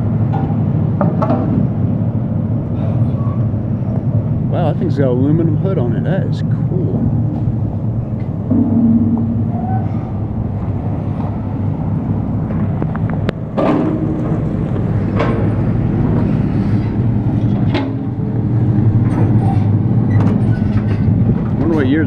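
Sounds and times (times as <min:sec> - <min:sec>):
diesel machinery droning: 0:00.0 - 0:22.0
sharp metallic clanks: 0:08.4 - 0:10.2.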